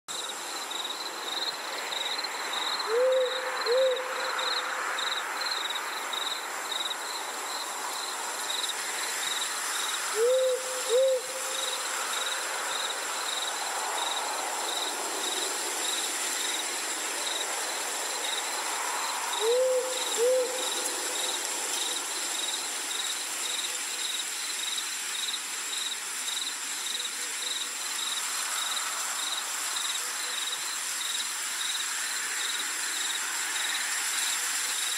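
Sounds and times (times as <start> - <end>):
crickets chirping: 0.1 - 34.9
soft hiss: 0.2 - 34.9
owl hooting: 2.8 - 4.6, 10.1 - 11.8, 19.4 - 20.8.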